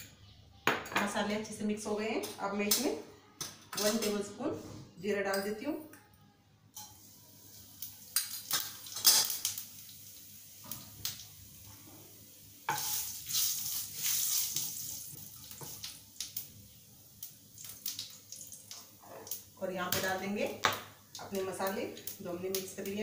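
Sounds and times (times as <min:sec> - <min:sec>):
seeds sizzling in hot oil: 0:06.8 - 0:23.0
spoon and spatula scraping pan: 0:12.7 - 0:14.8.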